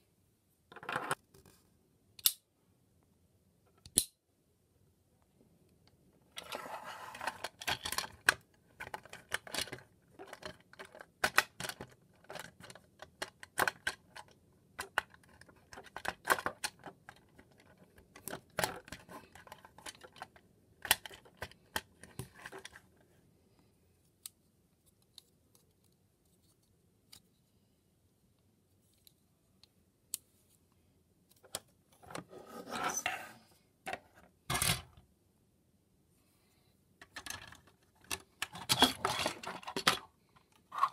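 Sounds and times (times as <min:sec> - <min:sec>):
plastic toy parts clicking: 0:02.2 - 0:02.4, 0:07.2 - 0:22.8, 0:37.0 - 0:40.1.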